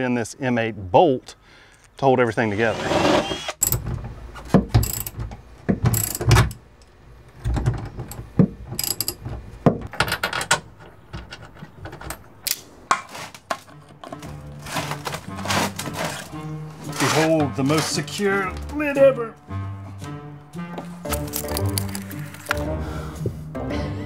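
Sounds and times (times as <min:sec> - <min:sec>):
ratchet wrench clicking: 0:04.8 - 0:05.2, 0:06.0 - 0:06.2, 0:08.8 - 0:09.2
metal hardware clinking: 0:07.7 - 0:12.6.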